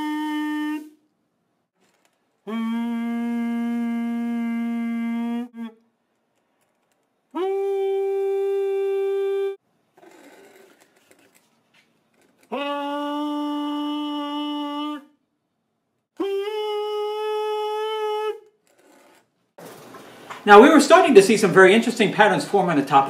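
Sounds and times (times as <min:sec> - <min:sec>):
man singing notes into a tube: 0:02.5 - 0:05.8, 0:07.4 - 0:09.6, 0:12.5 - 0:15.2, 0:16.2 - 0:18.5.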